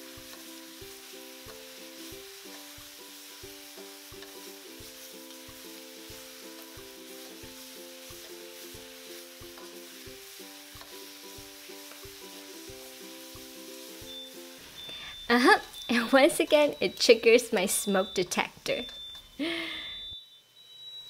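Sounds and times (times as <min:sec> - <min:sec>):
background music with beat: 0:00.0 - 0:15.0
meat sizzling in a wok: 0:00.0 - 0:21.0.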